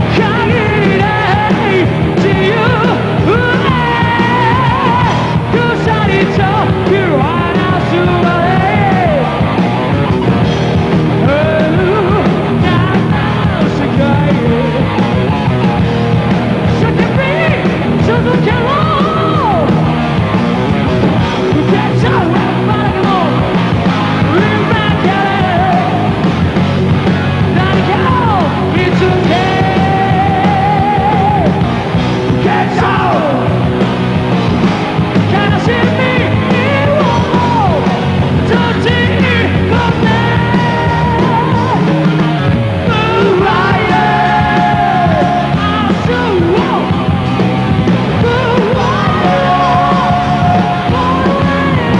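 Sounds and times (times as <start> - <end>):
heavy metal band playing live: 0.0 - 51.9
lead vocals singing: 0.0 - 51.9.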